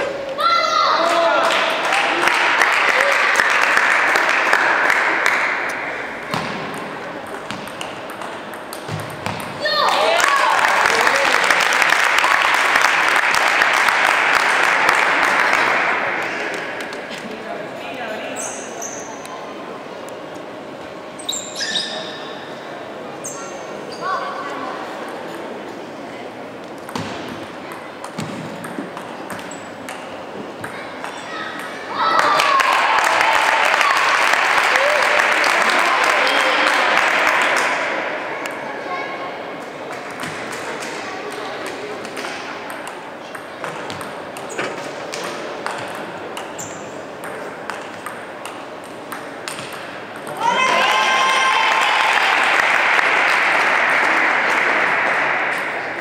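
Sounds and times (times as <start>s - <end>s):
murmur of spectators: 0.0s - 56.0s.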